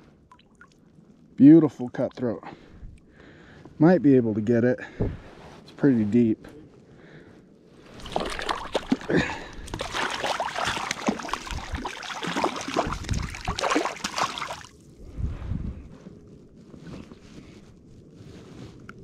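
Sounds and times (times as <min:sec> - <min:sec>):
fish thrashing in shallow water: 0:07.8 - 0:14.8
hands moving in water: 0:07.8 - 0:14.8.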